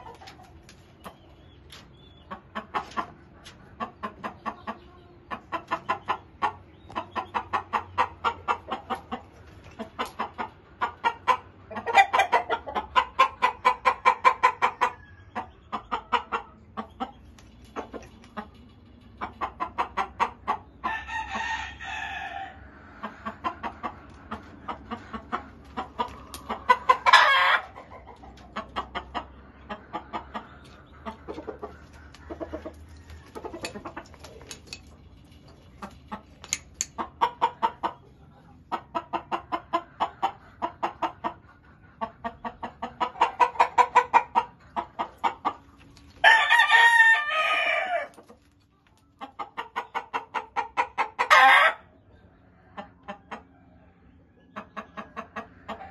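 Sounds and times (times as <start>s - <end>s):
chickens clucking: 0.0s - 55.9s
rooster crowing: 20.8s - 22.6s, 46.2s - 48.1s
loud chicken call: 26.7s - 27.6s, 46.2s - 48.1s, 51.2s - 51.8s.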